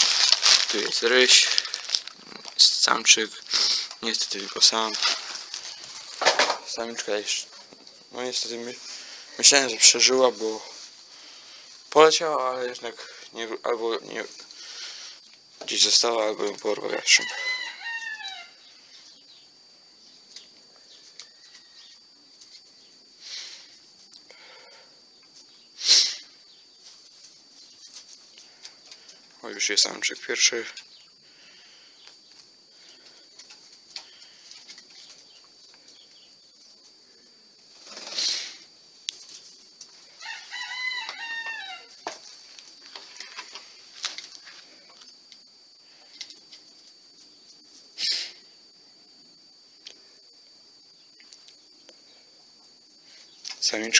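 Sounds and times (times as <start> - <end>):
rustling bursts: 0.0 - 2.6
rooster crowing: 16.9 - 18.8, 40.1 - 42.2.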